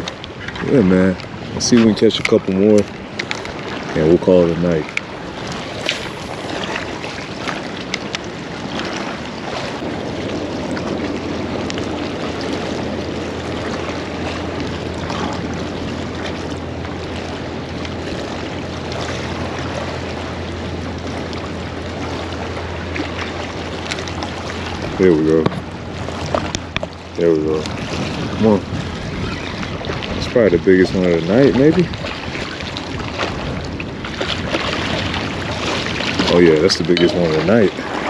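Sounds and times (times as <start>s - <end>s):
faint clicks of rod and reel: 0.0s - 3.9s, 25.4s - 27.8s
water noise: 0.0s - 38.0s
wind on microphone: 0.0s - 38.0s.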